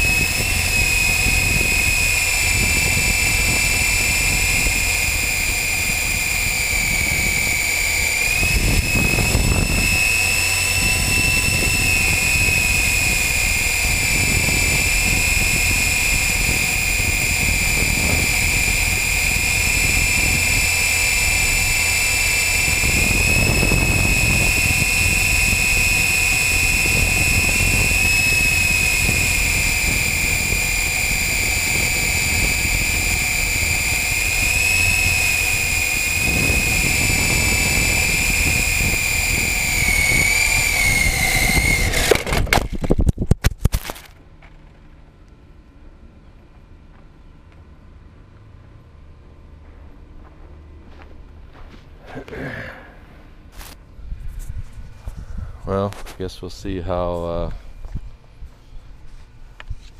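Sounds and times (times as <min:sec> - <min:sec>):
helicopter rotor whine: 0:00.0 - 0:43.1, 0:51.2 - 0:58.4
wind buffeting microphone: 0:00.0 - 0:43.5, 0:54.0 - 0:56.3.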